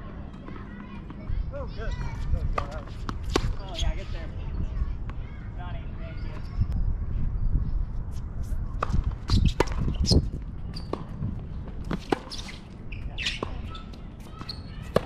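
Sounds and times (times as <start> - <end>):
tennis ball bouncing: 2.5 - 3.7, 8.8 - 15.0.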